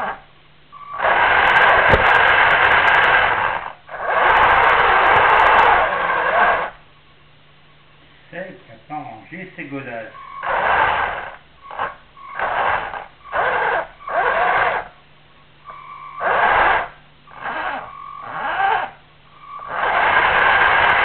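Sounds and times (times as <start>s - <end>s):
remote-controlled vehicle motor: 0.8s - 6.8s, 10.3s - 15.0s, 16.1s - 21.0s.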